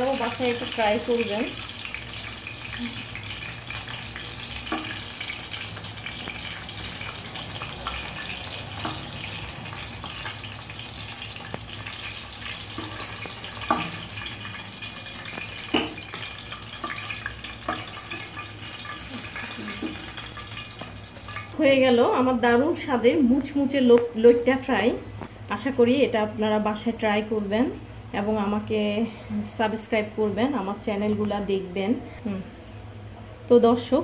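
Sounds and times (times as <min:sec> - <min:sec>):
oil sizzling in frying pan: 0:00.0 - 0:21.6
metal ladle knocking pan: 0:12.7 - 0:14.4, 0:15.3 - 0:19.0.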